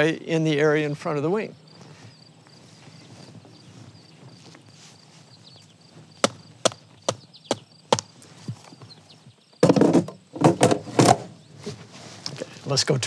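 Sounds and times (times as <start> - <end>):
sharp knocks: 6.2 - 8.1
thumps and rustling: 9.6 - 12.5.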